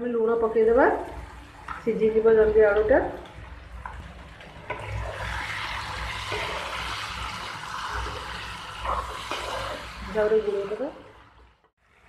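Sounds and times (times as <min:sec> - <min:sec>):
potatoes sizzling and bubbling: 0:00.4 - 0:12.0.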